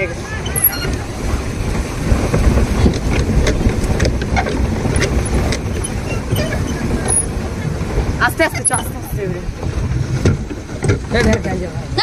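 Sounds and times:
pedal boat low rumble: 0:00.0 - 0:12.0
water churning: 0:00.0 - 0:12.0
clicks and knocks from hull: 0:02.3 - 0:07.4, 0:09.6 - 0:11.5.

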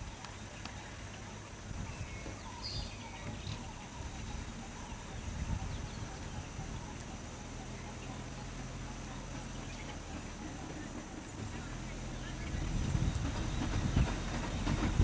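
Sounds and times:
faint bird chirps: 0:00.0 - 0:10.6
vehicle engine idling: 0:00.0 - 0:15.0.

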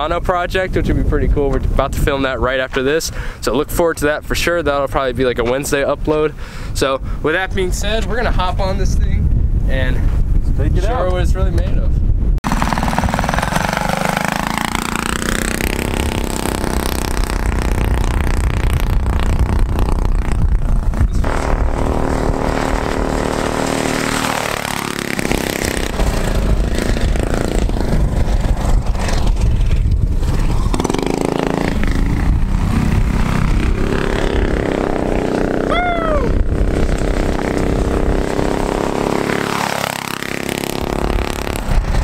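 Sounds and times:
go-kart engine revving: 0:12.5 - 0:42.0.

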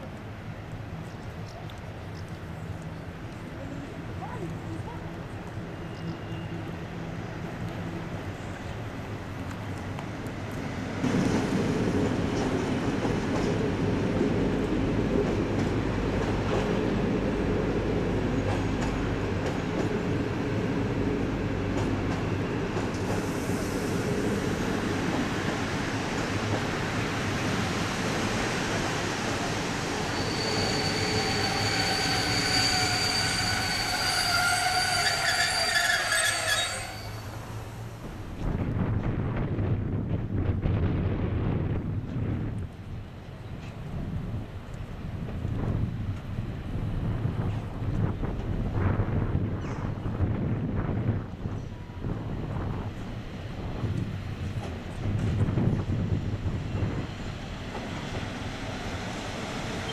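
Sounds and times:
train wheels rumbling on track: 0:00.0 - 0:59.9
metallic brake squeal: 0:30.0 - 0:37.6.

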